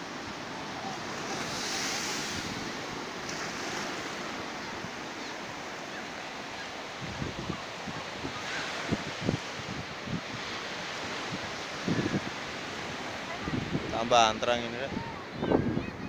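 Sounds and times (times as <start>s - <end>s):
surf breaking on beach: 0.0s - 16.0s
wind buffeting microphone: 6.9s - 16.0s.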